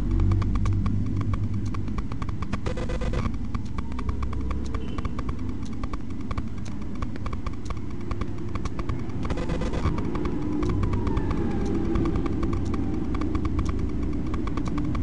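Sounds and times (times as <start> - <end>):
fast regular ticking: 0.0 - 15.0
trucks rumbling past: 9.9 - 15.0.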